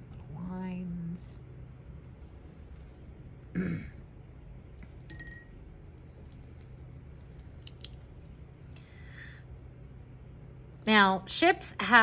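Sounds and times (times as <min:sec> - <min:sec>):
faint low hum: 0:00.0 - 0:12.0
ringing clink: 0:05.1 - 0:05.6.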